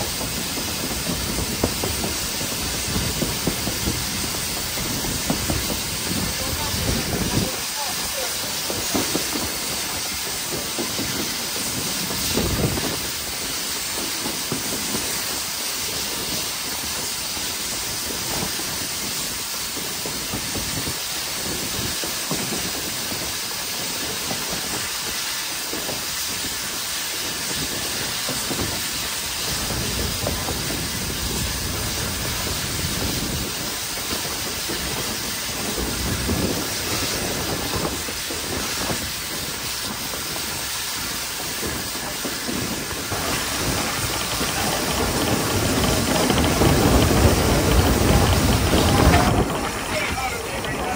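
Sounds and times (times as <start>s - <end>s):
heavy low surges: 0.0s - 13.9s, 29.3s - 50.9s
locomotive running noise: 0.0s - 50.9s
steam locomotive hissing: 0.0s - 50.9s.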